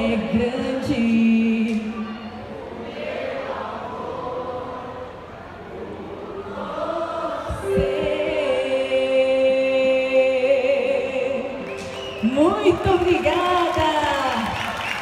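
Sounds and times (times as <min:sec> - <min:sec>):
audience singing: 0:02.4 - 0:12.2
electronic keyboard: 0:07.6 - 0:13.2.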